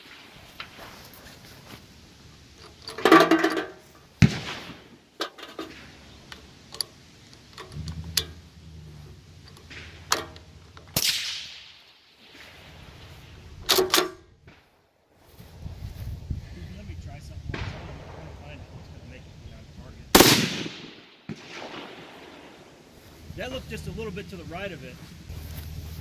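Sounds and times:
metallic clacks of gun action: 0:09.5 - 0:11.0, 0:13.6 - 0:14.2.

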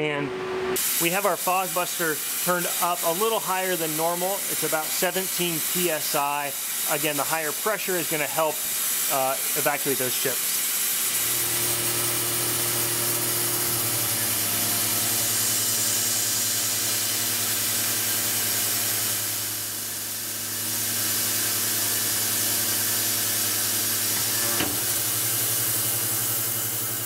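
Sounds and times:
hiss of mist coolant: 0:00.8 - 0:27.0
milling spindle cutting metal: 0:00.8 - 0:27.0.

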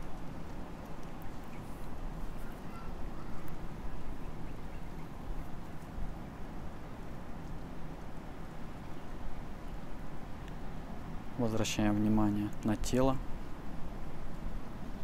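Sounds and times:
wind: 0:00.0 - 0:15.0
faint bird chirps: 0:02.3 - 0:05.2.

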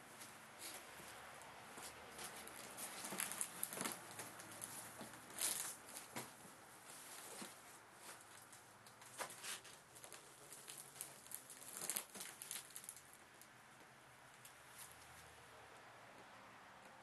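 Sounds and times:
cardboard crinkling: 0:01.6 - 0:13.2.

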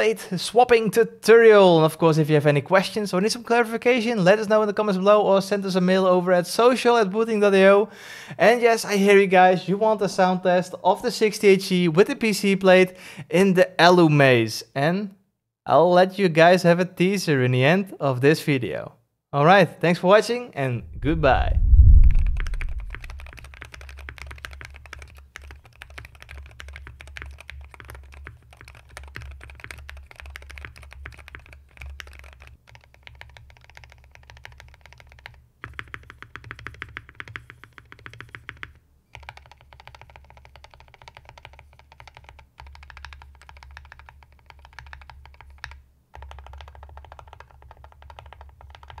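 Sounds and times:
keyboard typing: 0:22.6 - 0:49.0.

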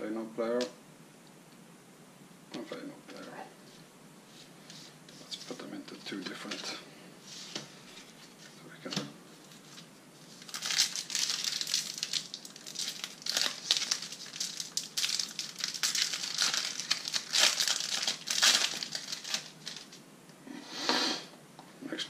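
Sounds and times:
foil wrapper crinkling and tearing: 0:09.4 - 0:20.0.

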